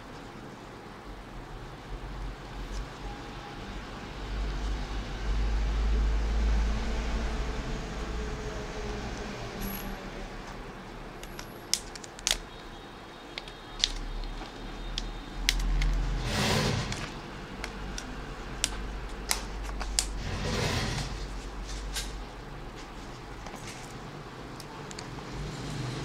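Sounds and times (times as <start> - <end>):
plastic clips snapping: 11.2 - 12.5, 13.3 - 16.0
handling rustles: 21.3 - 24.1.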